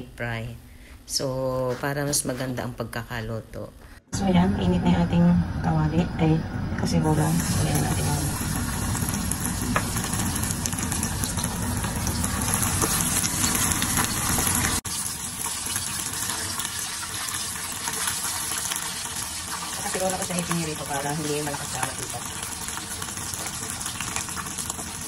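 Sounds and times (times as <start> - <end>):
oil sizzling and bubbling: 6.4 - 25.0.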